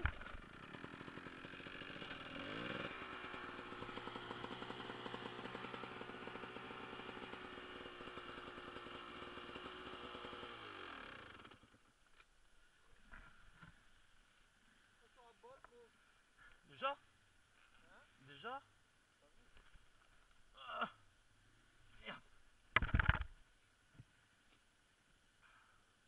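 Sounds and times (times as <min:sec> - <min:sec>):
dirt bike engine revving: 0:00.0 - 0:11.7.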